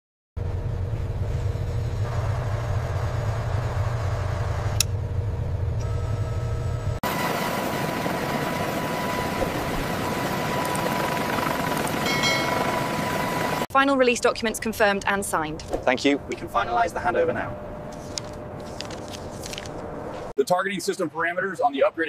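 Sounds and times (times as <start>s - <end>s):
deep engine-like rumble: 0.4s - 13.6s
high turbine whine: 0.4s - 13.7s, 14.8s - 20.3s
helicopter rotor and engine: 0.4s - 19.9s.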